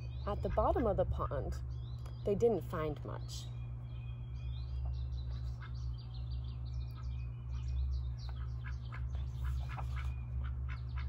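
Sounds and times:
small birds chirping: 0.0s - 11.0s
steady low rumble: 0.0s - 11.0s.

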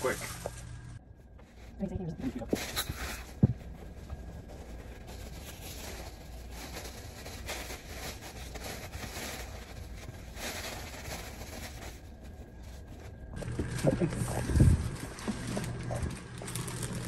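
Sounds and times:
paper towel scrubbing floor: 0.0s - 0.7s
paper rustling: 1.4s - 17.0s.

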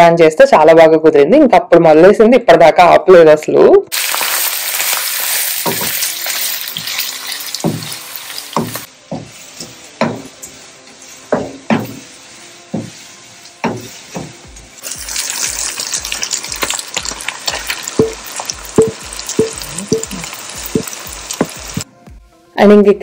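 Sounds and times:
loud crackling sizzle: 3.9s - 21.9s
spatula stirring onions in pan: 4.0s - 21.9s
spatula knocking against pan: 8.6s - 10.3s, 11.3s - 12.0s, 12.7s - 13.0s, 13.6s - 14.4s, 18.0s - 18.2s, 18.8s - 20.1s.

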